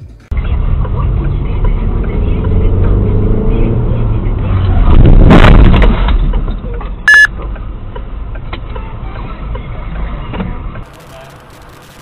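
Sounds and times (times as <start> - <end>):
short high electronic beep: 7.1 - 7.3.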